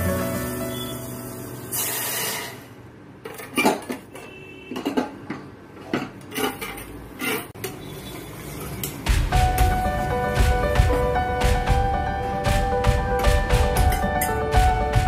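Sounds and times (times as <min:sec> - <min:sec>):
metal spoon scraping pan: 0:06.2 - 0:09.0.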